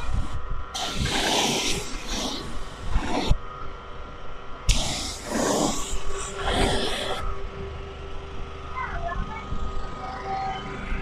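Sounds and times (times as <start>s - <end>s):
faint steady hum: 0.0s - 11.0s
pressure washer spray hissing: 0.8s - 3.3s, 4.7s - 7.2s.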